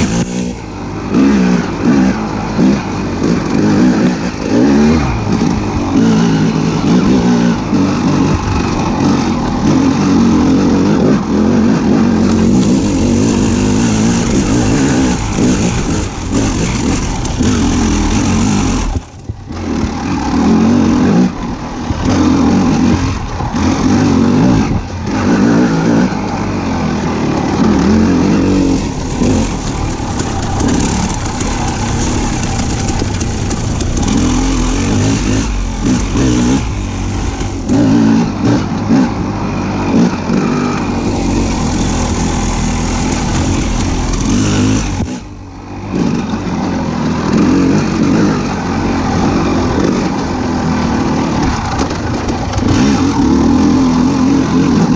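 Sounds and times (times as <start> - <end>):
vehicle engine revving: 0.0 - 54.9.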